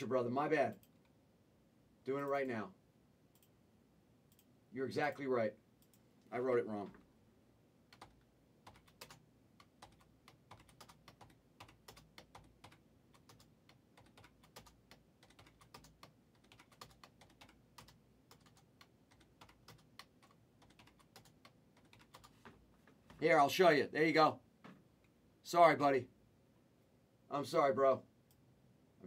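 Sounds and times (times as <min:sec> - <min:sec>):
typing on computer keyboard: 0:07.9 - 0:22.4.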